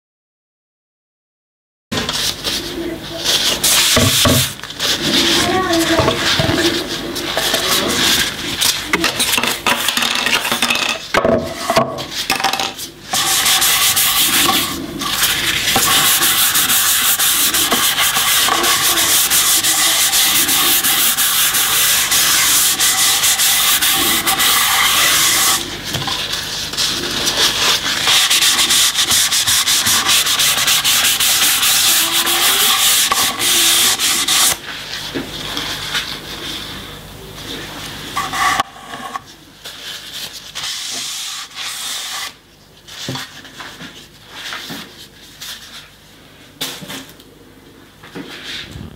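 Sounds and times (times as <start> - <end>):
cloth rubbing wooden board: 2.2 - 8.8, 13.1 - 34.6.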